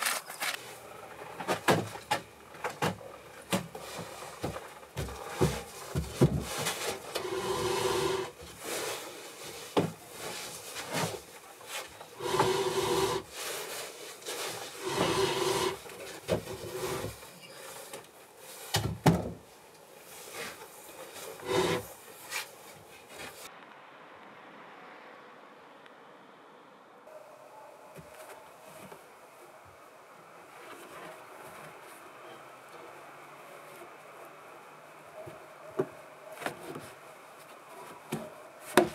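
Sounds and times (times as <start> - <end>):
wooden board scraping and squeaking: 0.0 - 8.8, 9.6 - 13.5, 14.3 - 17.9, 21.2 - 21.9.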